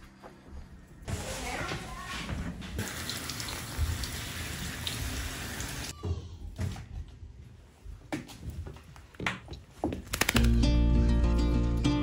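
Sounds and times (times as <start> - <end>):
water running in a bathtub: 2.8 - 5.9.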